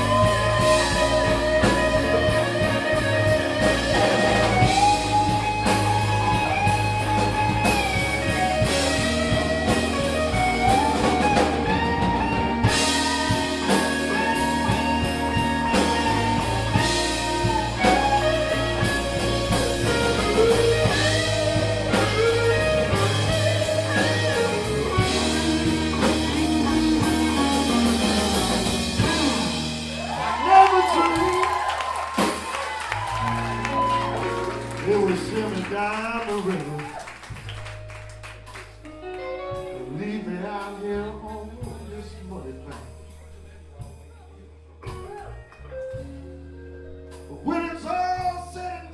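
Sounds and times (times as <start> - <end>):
sliding guitar lead line: 0.0 - 36.9, 37.5 - 41.9
live blues band playing: 0.0 - 48.9.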